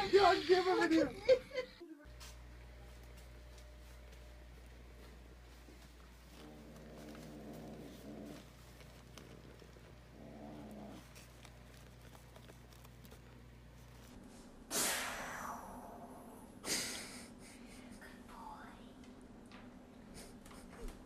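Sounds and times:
cat growling: 0:06.3 - 0:14.1.

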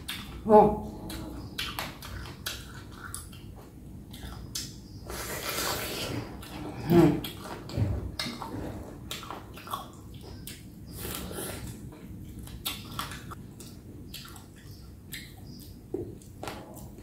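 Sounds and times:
noisy slurping: 0:05.1 - 0:07.6.

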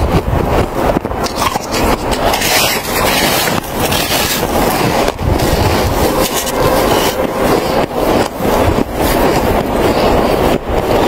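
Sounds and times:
chewing crunchy snow: 0:01.2 - 0:04.8.

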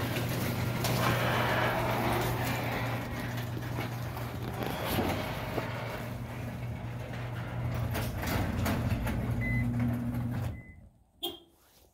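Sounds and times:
garage door motor hum: 0:00.0 - 0:10.9
door panels clicking and rattling: 0:05.2 - 0:10.5.

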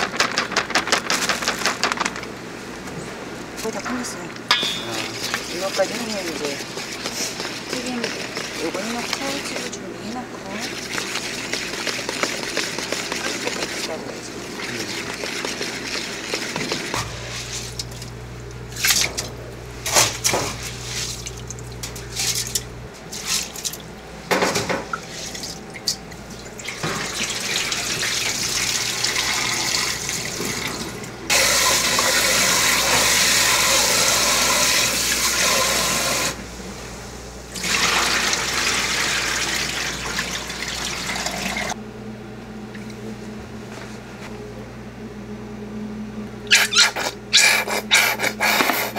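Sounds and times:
tap water running into bowl: 0:04.5 - 0:09.8, 0:10.4 - 0:17.0, 0:19.9 - 0:36.4, 0:37.6 - 0:41.8.

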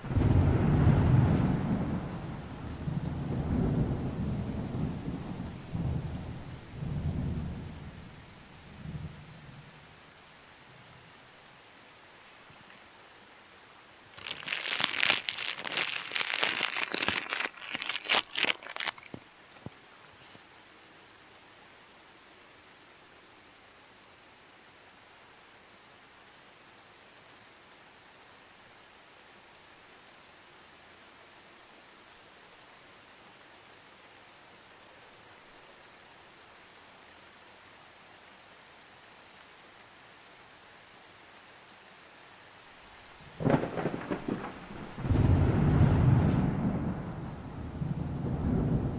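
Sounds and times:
faint steady hiss: 0:00.0 - 0:48.9
crinkly packaging crackling: 0:14.1 - 0:19.2.

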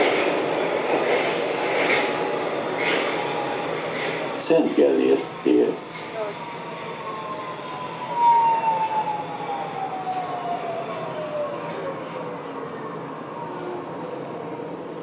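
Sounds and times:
train running noise on rails: 0:00.0 - 0:15.0
steady high tone: 0:04.4 - 0:13.9.

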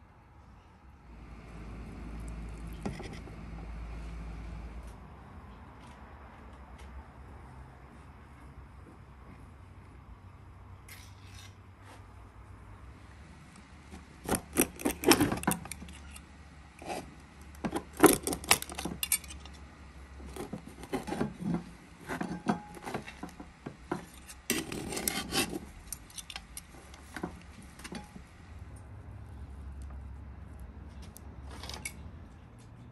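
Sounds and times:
metal spatula scraping pot: 0:14.2 - 0:16.2, 0:16.8 - 0:19.5, 0:20.2 - 0:28.2.

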